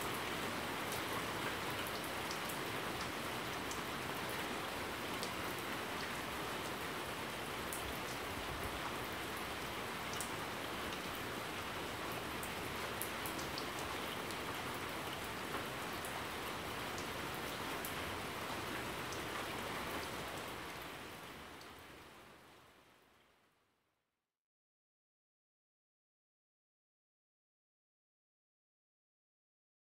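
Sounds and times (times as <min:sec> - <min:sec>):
steady rain hiss: 0:00.0 - 0:23.7.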